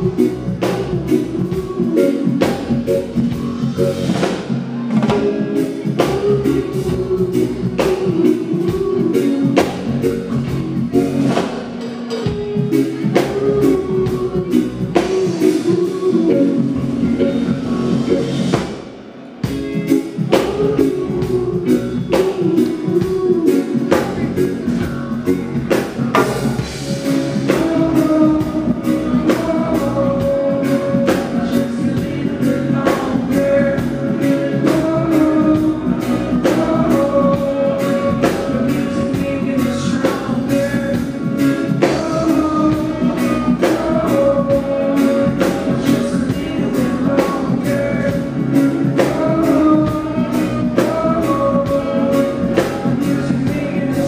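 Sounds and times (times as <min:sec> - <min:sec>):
man singing lead vocal: 0:00.0 - 0:19.0, 0:19.8 - 0:54.0
bass: 0:00.0 - 0:54.0
electric guitar: 0:00.0 - 0:54.0
reggae band playing through pa: 0:00.0 - 0:54.0
drum beat: 0:17.9 - 0:53.9.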